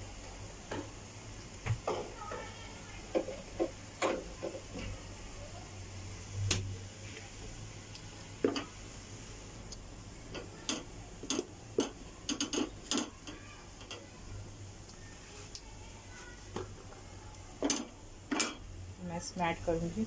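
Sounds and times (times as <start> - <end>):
sharp clicks and light knocks: 9.7 - 14.1.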